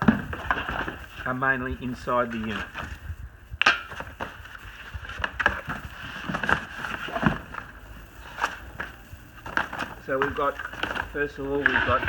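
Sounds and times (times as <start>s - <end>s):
handling knocks clicks and rustles: 3.6s - 12.0s.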